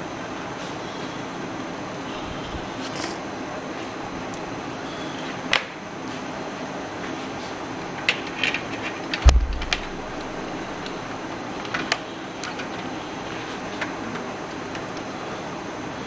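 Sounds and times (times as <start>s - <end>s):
cables and plastic connectors clicking: 7.8s - 15.2s
loud click and thump: 9.2s - 11.0s.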